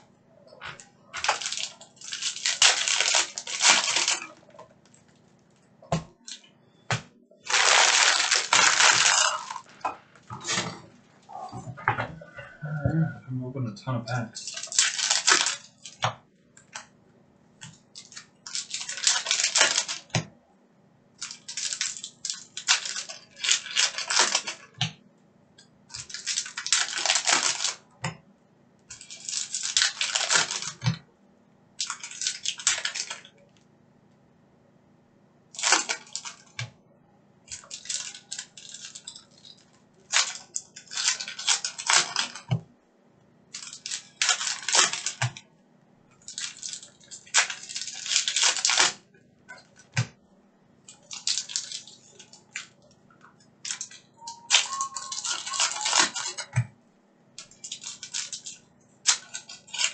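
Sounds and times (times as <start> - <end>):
foil wrappers tearing and crinkling: 0.8 - 4.4, 7.4 - 9.8, 14.4 - 16.0, 17.8 - 20.1, 21.2 - 24.7, 25.9 - 27.8, 28.9 - 30.9, 31.8 - 33.3, 35.5 - 36.6, 37.5 - 42.5, 43.5 - 45.3, 46.2 - 49.0, 50.9 - 52.7, 53.6 - 56.6, 57.4 - 59.9.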